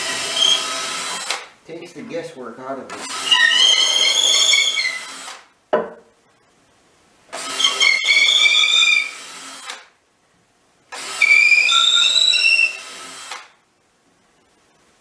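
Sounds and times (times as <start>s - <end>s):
drill bit high whistle: 0.0s - 0.8s, 3.1s - 5.1s, 7.5s - 9.2s, 11.0s - 13.0s
electric drill boring into wood: 0.0s - 1.5s, 2.9s - 5.5s, 7.3s - 9.9s, 10.9s - 13.6s.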